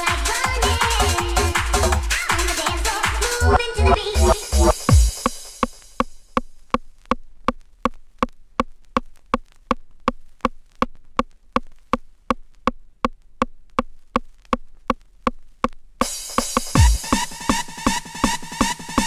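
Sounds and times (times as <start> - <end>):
trance dance track: 0.0 - 5.8, 16.1 - 19.0.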